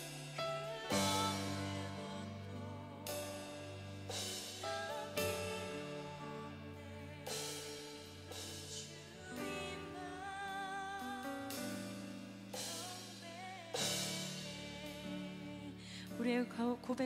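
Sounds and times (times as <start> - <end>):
live band playing: 0.0 - 9.7
woman singing: 0.0 - 17.0.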